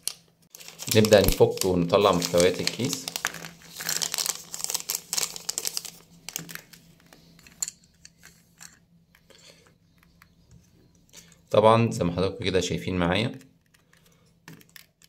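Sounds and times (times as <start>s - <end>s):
foil pouch crinkling: 0.0s - 7.0s.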